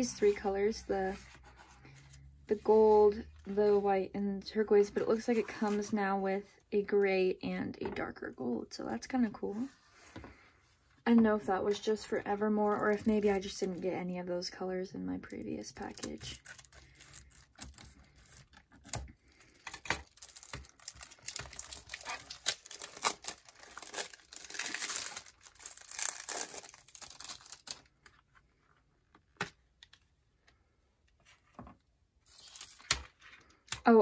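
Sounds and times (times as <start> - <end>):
cellophane crinkling and tearing: 15.6 - 28.3.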